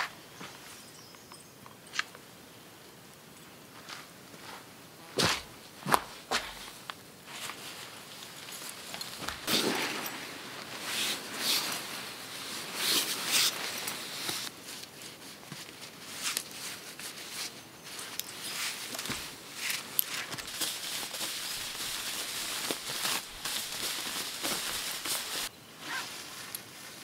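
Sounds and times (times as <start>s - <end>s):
footsteps on forest floor: 3.8s - 14.7s, 17.9s - 26.6s
fabric rustling: 5.4s - 27.0s.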